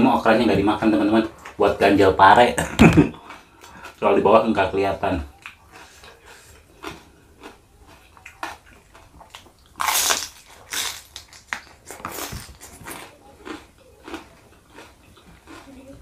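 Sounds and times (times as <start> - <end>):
person crunching raw vegetables: 5.2 - 15.7.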